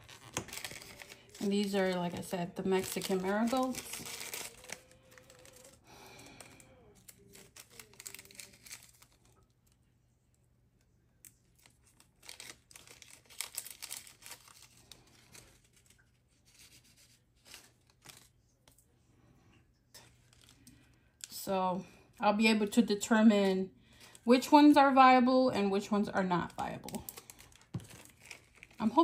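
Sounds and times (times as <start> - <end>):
rustling of seeds and paper: 0.0 - 9.3, 11.6 - 18.4, 26.9 - 29.0.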